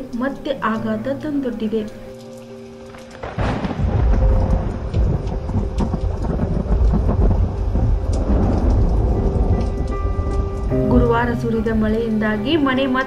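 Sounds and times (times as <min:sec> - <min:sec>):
heavy rain: 0:00.0 - 0:13.0
rumble of thunder: 0:02.9 - 0:13.0.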